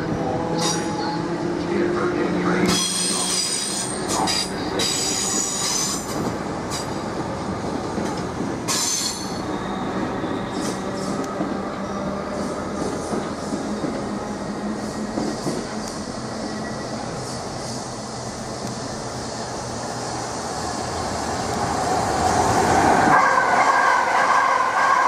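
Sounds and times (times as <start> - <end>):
train rumbling: 0.0 - 25.0
high-pitched train squeals: 0.5 - 1.3, 2.7 - 7.0, 8.7 - 18.0.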